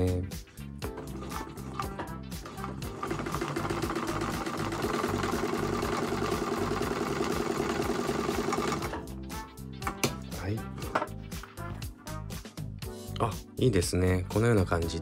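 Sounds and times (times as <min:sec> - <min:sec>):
sewing machine running: 0:01.0 - 0:09.0.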